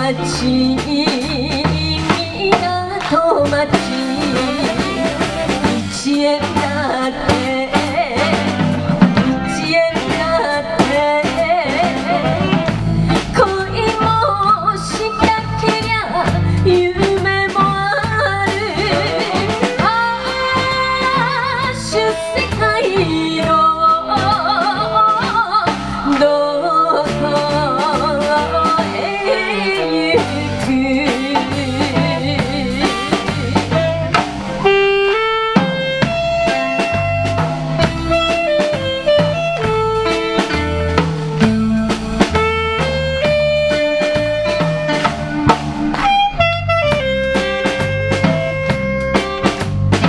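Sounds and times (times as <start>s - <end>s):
woman singing: 0.0s - 34.2s
live band playing: 0.0s - 50.0s.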